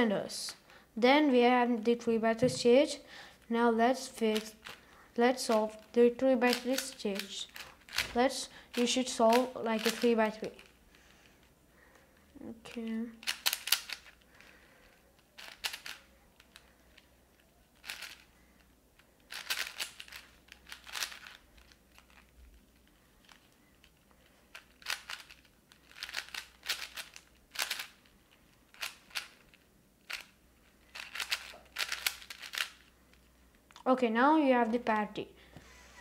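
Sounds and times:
puzzle cube clicking: 0:04.1 - 0:10.7, 0:13.2 - 0:14.5, 0:15.4 - 0:16.6, 0:17.8 - 0:18.3, 0:19.3 - 0:22.3, 0:24.5 - 0:28.1, 0:28.7 - 0:32.9.

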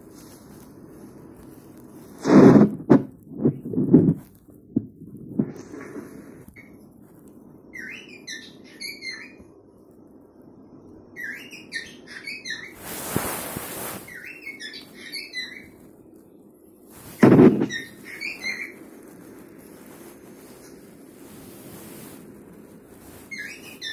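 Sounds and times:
rustling hiss: 0:00.0 - 0:23.9
loud thump: 0:02.2 - 0:03.2, 0:17.2 - 0:17.8
cockatiel chirps and whistles: 0:07.7 - 0:09.4, 0:11.2 - 0:15.8, 0:17.4 - 0:18.8, 0:23.0 - 0:23.9.

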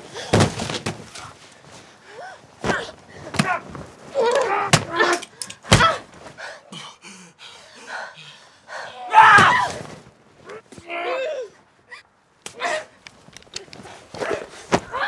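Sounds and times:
fighters grunting and shouting: 0:02.1 - 0:09.8, 0:10.5 - 0:11.6, 0:12.5 - 0:13.0, 0:14.0 - 0:15.0.

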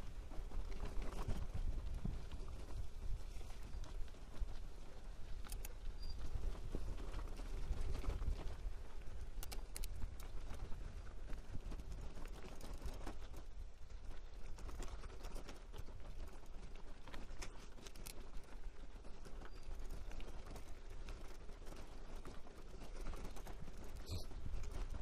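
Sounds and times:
wind on microphone: 0:00.0 - 0:16.6
bicycle rattling and clattering: 0:00.0 - 0:25.0.

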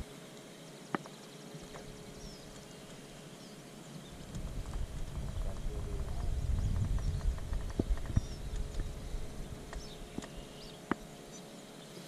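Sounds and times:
low rumble: 0:04.2 - 0:10.1.

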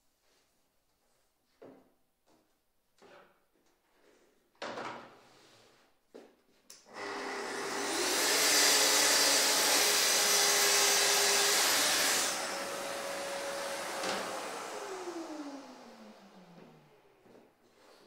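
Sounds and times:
circular saw cutting board: 0:06.9 - 0:17.0.

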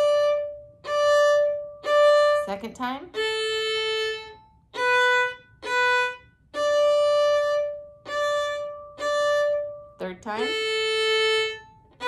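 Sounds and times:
solo violin slow bow strokes: 0:00.0 - 0:12.0.

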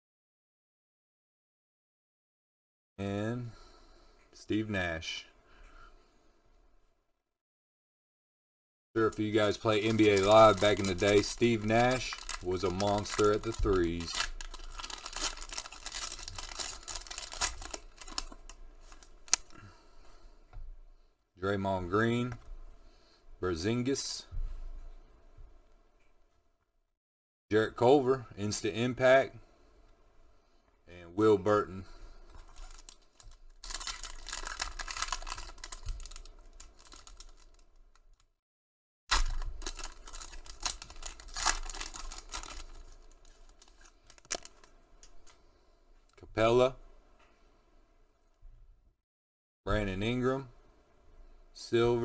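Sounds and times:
foil wrapper crinkling: 0:09.0 - 0:19.6, 0:32.2 - 0:38.3, 0:39.1 - 0:45.4.

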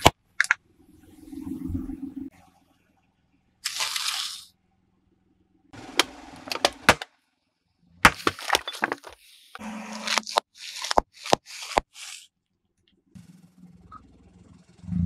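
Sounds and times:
chips crunching and crackling: 0:03.6 - 0:04.5, 0:08.1 - 0:09.2, 0:09.8 - 0:12.3
crisp packets bursting with pops: 0:03.6 - 0:04.5.

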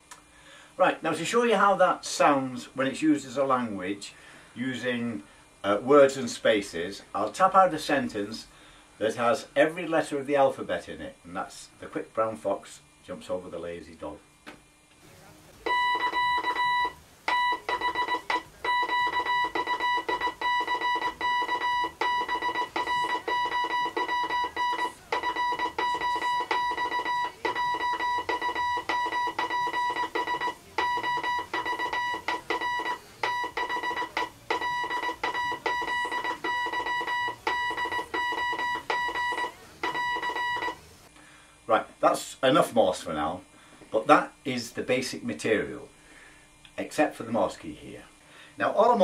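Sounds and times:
morse code electronic tone: 0:15.6 - 0:40.9.

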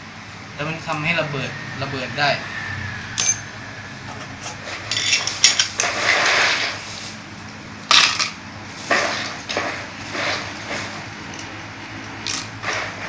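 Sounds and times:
metal parts clinking on tray: 0:04.9 - 0:05.7.

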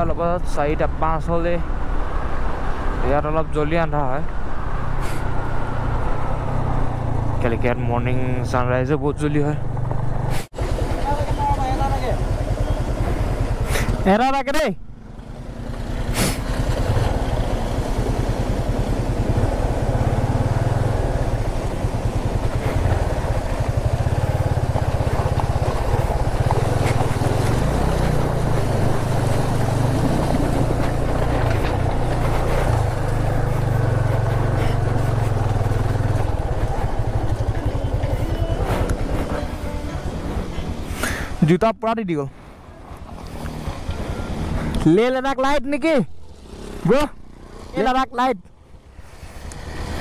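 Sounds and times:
tyre and road noise: 0:00.0 - 0:50.0
motorcycle engine running: 0:09.4 - 0:14.2, 0:14.8 - 0:41.4.

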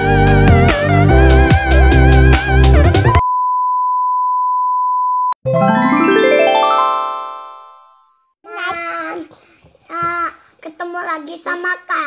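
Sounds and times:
synthesized chime descending: 0:05.5 - 0:08.0.

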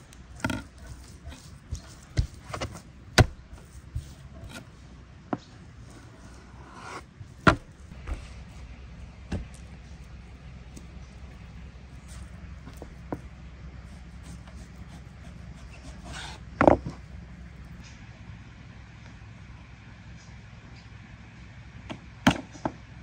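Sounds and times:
knife blade scraping: 0:05.8 - 0:07.1.

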